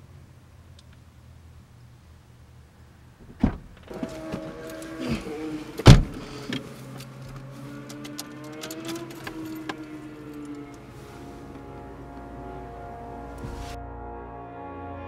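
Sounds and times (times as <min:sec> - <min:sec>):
car door shutting thud: 0:03.2 - 0:06.6, 0:13.3 - 0:13.8
person getting into car: 0:03.2 - 0:13.8
car door opening with knock: 0:05.8 - 0:06.2.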